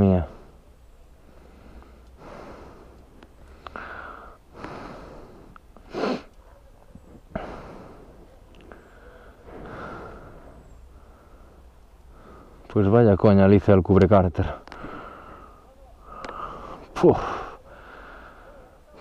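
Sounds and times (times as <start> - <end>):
man breathing hard: 1.2 - 6.4, 7.3 - 12.7, 14.7 - 18.9
sharp puff of breath: 5.9 - 6.3
light clicks: 14.6 - 14.9, 16.2 - 16.4.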